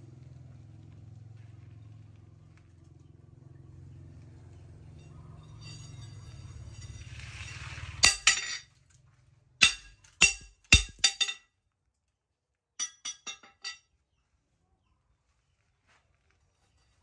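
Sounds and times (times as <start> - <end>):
metallic clinks on anvil: 4.9 - 8.6, 9.6 - 11.4, 12.8 - 13.8.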